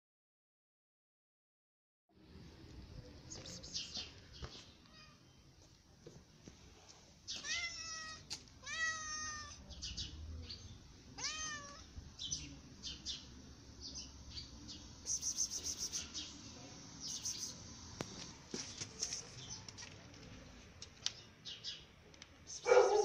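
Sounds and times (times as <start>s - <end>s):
cat meowing: 7.4s - 9.6s, 11.2s - 11.9s.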